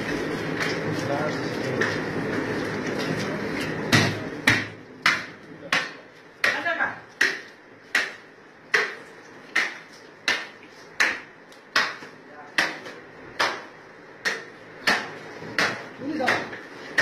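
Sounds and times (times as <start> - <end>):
cleaver chopping meat and bone: 3.9 - 17.0.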